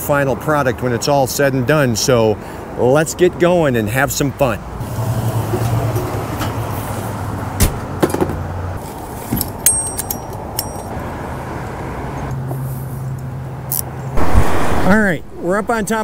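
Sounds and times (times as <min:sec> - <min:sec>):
light metallic clinks: 0:09.6 - 0:11.0.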